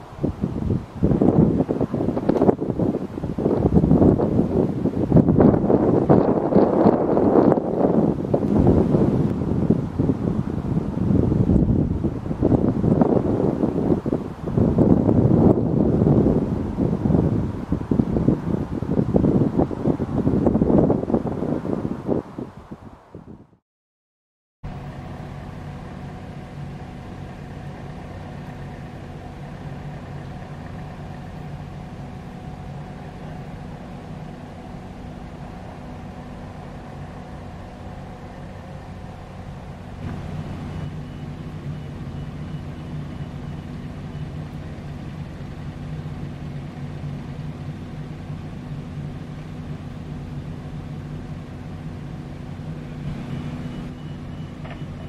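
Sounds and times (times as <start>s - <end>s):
idling engines droning: 0.0s - 22.8s, 24.6s - 55.0s
faint high whine: 24.7s - 55.0s.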